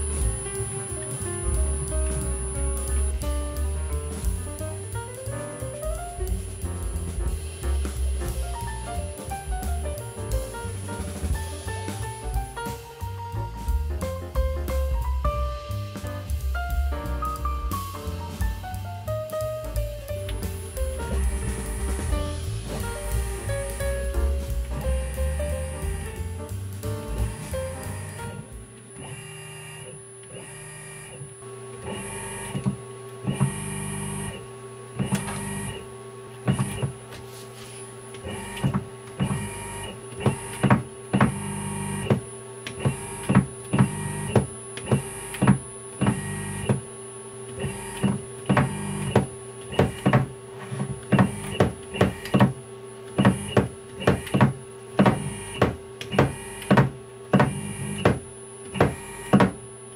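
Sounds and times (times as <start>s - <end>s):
servo motor hum: 21.1s - 24.0s, 27.1s - 37.0s, 37.7s - 46.9s, 47.5s - 59.6s.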